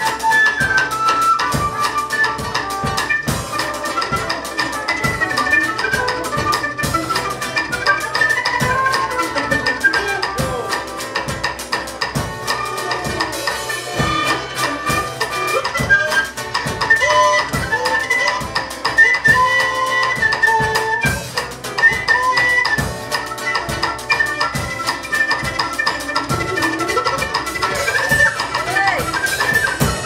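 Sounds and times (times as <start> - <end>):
acoustic guitar: 0.0 - 30.0
drum kit beat: 0.0 - 30.0
trumpet melody: 0.0 - 30.0.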